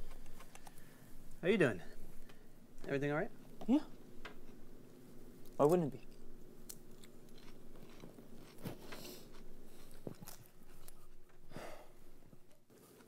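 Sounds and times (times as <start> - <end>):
low room hum: 0.0 - 13.0
person chewing food: 3.9 - 12.6.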